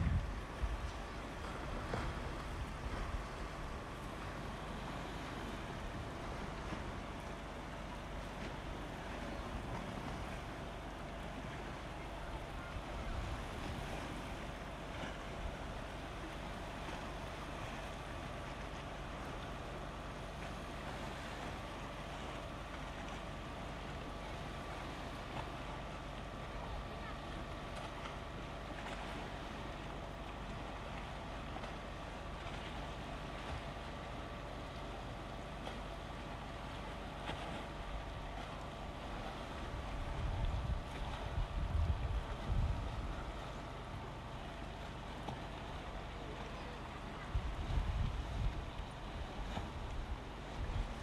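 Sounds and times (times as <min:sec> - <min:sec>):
wind on microphone: 0:00.0 - 0:03.6, 0:39.8 - 0:43.4, 0:47.2 - 0:51.0
faint constant hum: 0:00.0 - 0:51.0
water lapping against rocks: 0:00.0 - 0:51.0.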